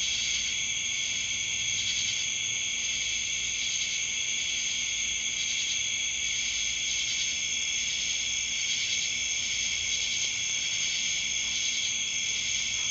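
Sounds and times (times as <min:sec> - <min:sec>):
night insects chorus: 0:00.0 - 0:12.9.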